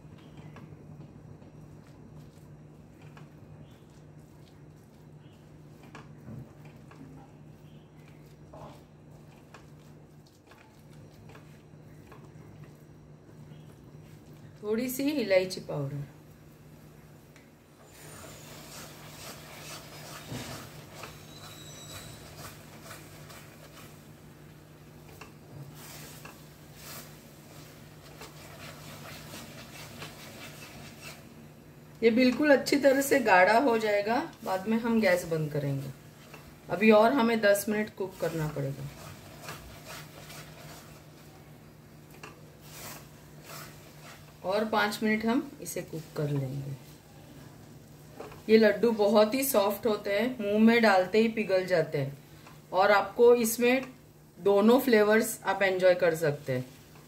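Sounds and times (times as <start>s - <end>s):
spatula squishing thick mix: 0.0s - 16.6s, 17.9s - 57.0s
low steady hum: 0.0s - 57.0s
spatula scraping metal pan: 18.0s - 24.0s, 38.2s - 41.1s, 42.6s - 44.4s.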